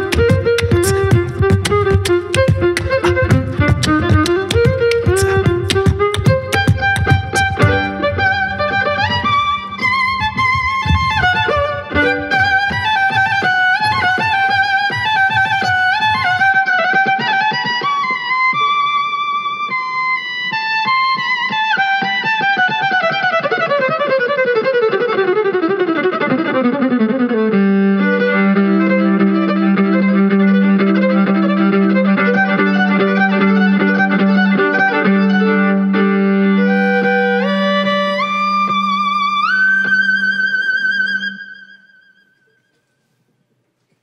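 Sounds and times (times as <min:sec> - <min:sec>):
violins playing: 0:00.0 - 0:17.2, 0:28.0 - 0:41.9.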